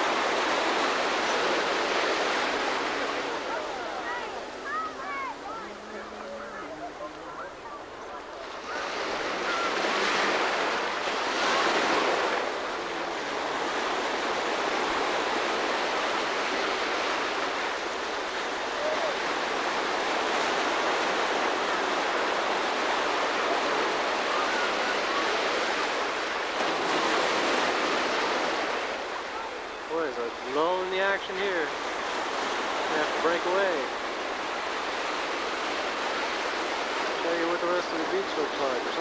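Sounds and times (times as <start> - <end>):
ocean surf breaking: 0.0 - 39.0.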